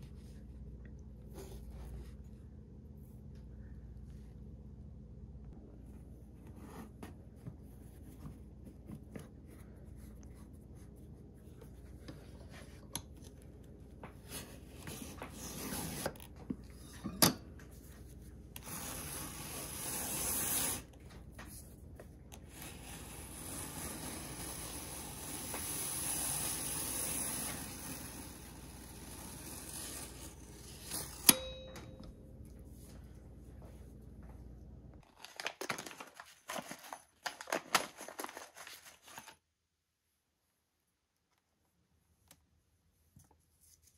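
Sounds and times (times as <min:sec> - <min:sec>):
leather scraping through roller cutter: 0:22.6 - 0:31.2.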